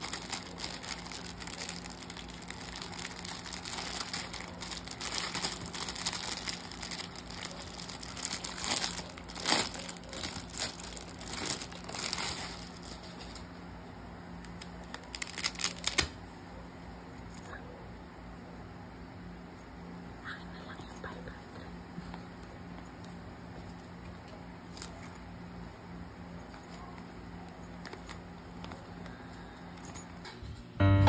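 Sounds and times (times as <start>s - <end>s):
plastic bag crinkling: 0.0s - 13.6s, 14.4s - 16.2s, 24.7s - 25.3s.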